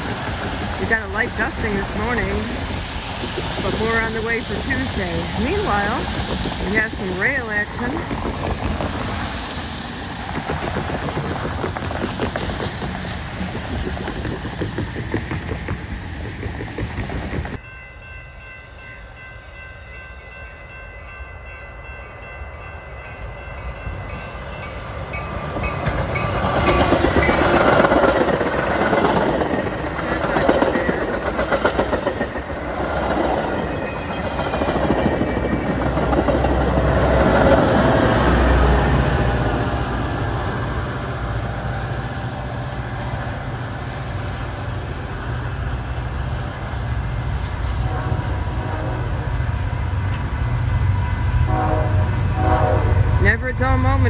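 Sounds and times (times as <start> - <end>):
train rumble and wheel clatter: 0.0 - 54.0
crossing signal bells ringing: 3.6 - 8.1, 17.6 - 27.8, 33.5 - 37.6.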